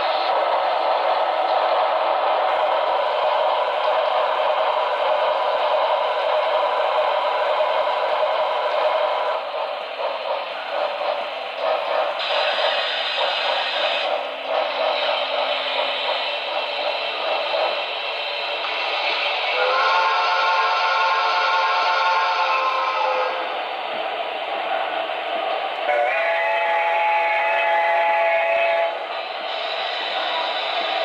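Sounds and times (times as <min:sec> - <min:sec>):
model steam locomotive hissing: 0:00.0 - 0:31.0.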